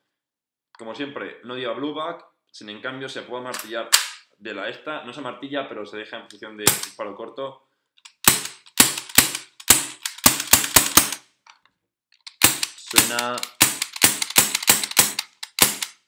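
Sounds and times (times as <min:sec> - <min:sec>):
airsoft pistol shots: 0:06.7 - 0:06.9, 0:08.2 - 0:11.2, 0:12.4 - 0:16.0.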